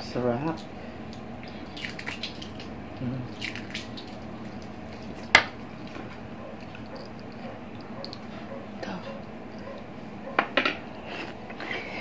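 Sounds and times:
eggshell crackling: 0.4 - 9.9
wet squishing: 0.6 - 6.0.

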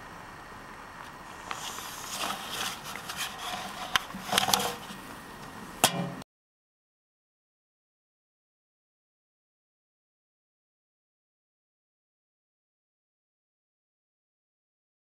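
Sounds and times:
paper envelope rustling: 1.6 - 5.1.

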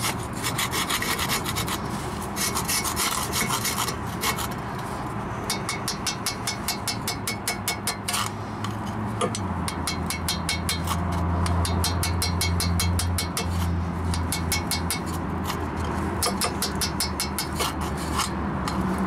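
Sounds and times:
hammer tapping steel chisel: 5.5 - 8.3, 9.2 - 13.5, 14.1 - 15.6, 16.2 - 18.8.

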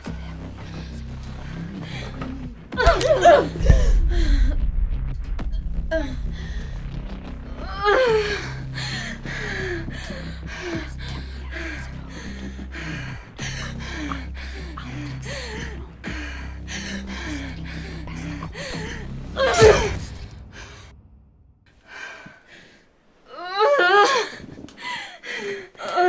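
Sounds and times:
low steady drone: 0.0 - 21.9
woman gasping and breathing hard: 0.7 - 4.7, 5.9 - 21.0, 21.8 - 26.0
woman crying out: 2.8 - 4.6, 7.6 - 8.4, 19.4 - 20.1
woman whimpering: 7.6 - 16.1, 16.8 - 20.1.

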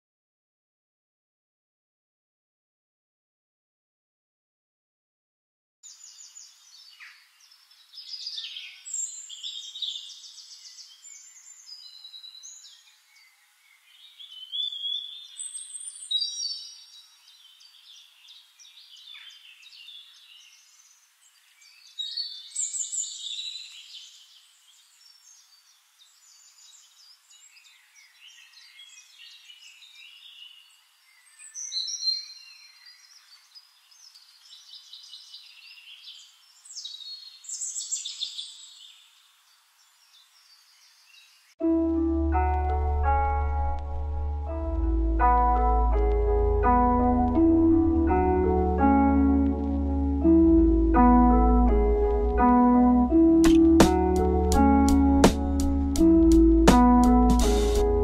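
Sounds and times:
songbirds chirping and trilling: 5.9 - 41.6
faint steady hiss: 16.8 - 31.9, 32.6 - 41.6.

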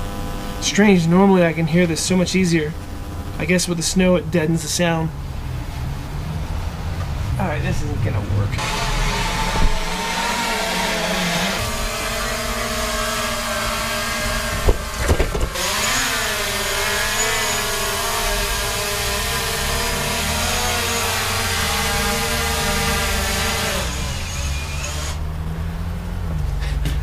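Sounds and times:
drone humming: 0.0 - 26.4
drone motors spinning down: 5.4 - 26.0
sharp knocks: 14.2 - 15.7.

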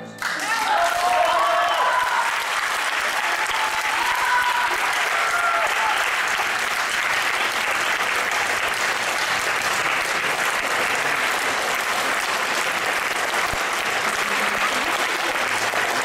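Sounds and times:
audience applauding: 0.2 - 16.0.

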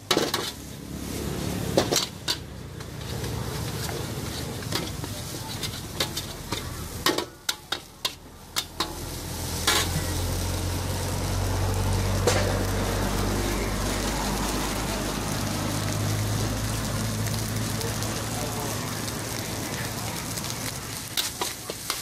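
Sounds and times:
metal spatula scraping a wok: 0.0 - 15.4, 19.1 - 22.0
food sizzling: 0.0 - 22.0.

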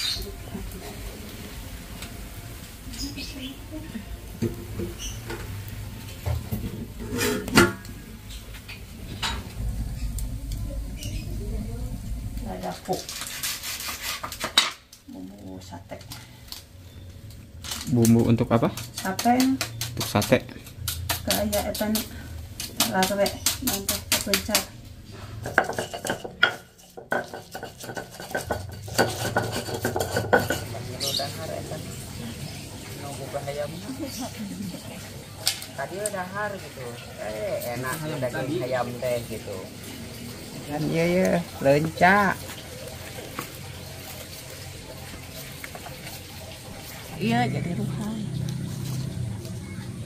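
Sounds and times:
metal pot and lid clanking: 7.0 - 8.0, 25.4 - 30.8
stone pestle grinding in mortar: 12.9 - 14.6, 25.4 - 30.8.

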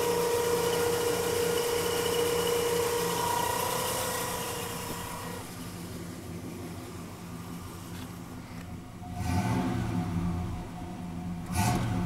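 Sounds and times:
pump-like whine: 0.0 - 5.7
car engine idling: 0.0 - 12.0.

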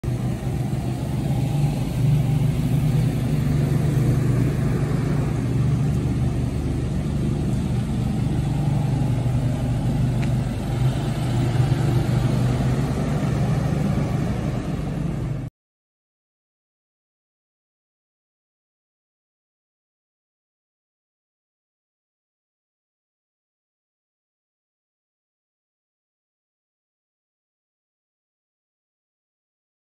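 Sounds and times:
truck engine running: 0.0 - 15.5.

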